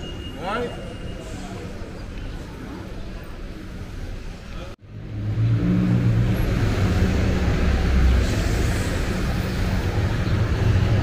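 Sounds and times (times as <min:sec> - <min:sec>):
low traffic hum: 0:00.0 - 0:11.0
vehicle engines running: 0:04.8 - 0:11.0.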